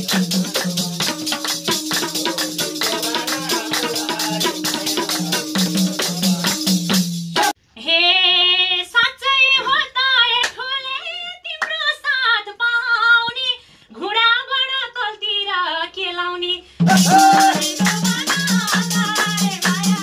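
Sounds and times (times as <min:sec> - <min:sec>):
people clapping: 0:00.0 - 0:07.0, 0:10.2 - 0:11.9, 0:16.9 - 0:20.0
tambourine: 0:00.0 - 0:07.5, 0:16.9 - 0:20.0
hand drum: 0:00.0 - 0:07.6, 0:16.8 - 0:20.0
woman singing unaccompanied: 0:07.8 - 0:20.0.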